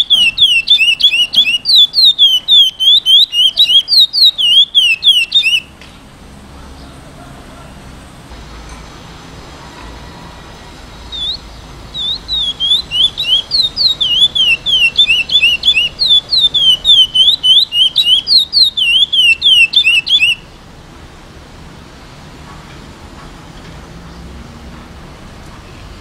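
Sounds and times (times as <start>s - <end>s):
finch singing whistled notes: 0.0s - 5.7s, 10.8s - 20.5s.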